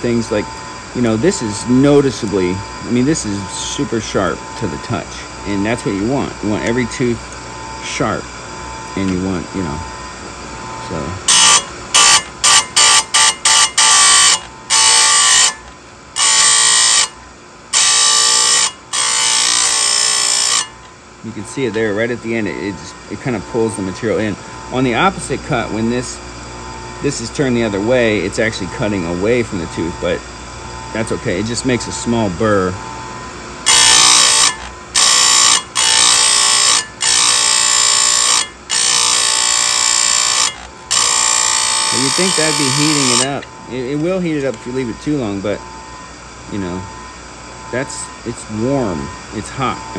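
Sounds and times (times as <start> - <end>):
grinding wheel screeching on metal: 0.0 - 49.9
grinding wheel on chain tooth: 10.9 - 17.2, 17.8 - 20.8, 33.6 - 45.5.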